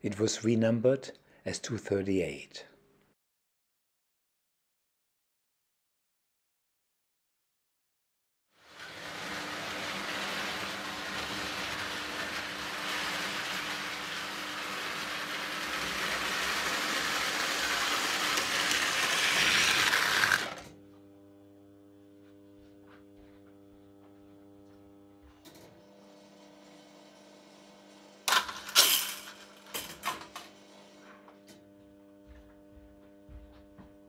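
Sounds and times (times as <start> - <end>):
toy train motor whirring: 8.7 - 20.7, 26.6 - 30.7.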